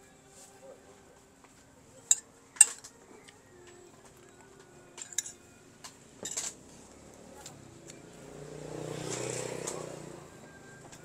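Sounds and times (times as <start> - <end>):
utensils clinking against dishes: 2.0 - 2.9, 5.0 - 5.4, 6.2 - 6.6.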